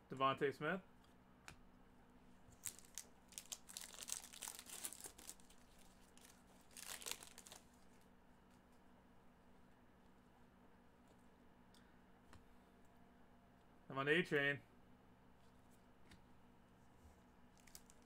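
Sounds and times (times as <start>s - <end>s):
foil wrapper crinkling and tearing: 2.5s - 8.0s, 17.5s - 18.0s.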